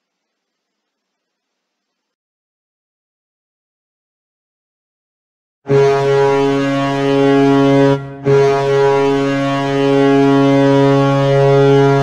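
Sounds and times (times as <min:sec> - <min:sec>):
goal horn blasts: 0:05.7 - 0:12.0.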